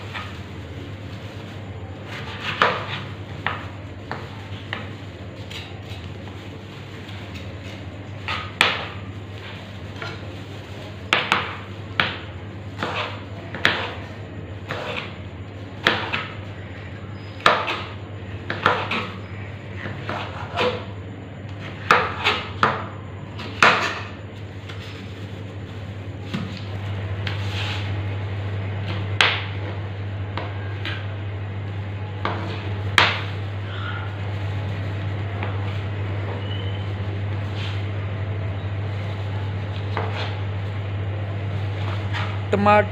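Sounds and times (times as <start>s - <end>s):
steady low hum: 0.0s - 42.9s
knife chopping on cutting board: 12.8s - 14.0s.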